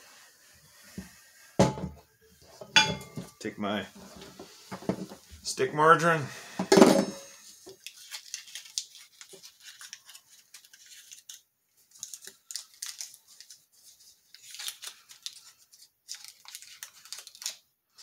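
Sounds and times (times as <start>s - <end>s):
paper wrapper crinkling and tearing: 7.6s - 18.0s.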